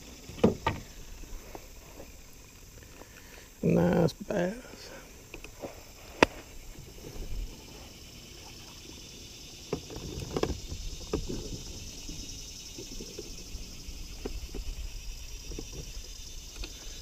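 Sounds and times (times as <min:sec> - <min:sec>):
fish handled in a kayak: 0:00.0 - 0:03.6, 0:04.8 - 0:17.0
insects buzzing: 0:00.0 - 0:17.0.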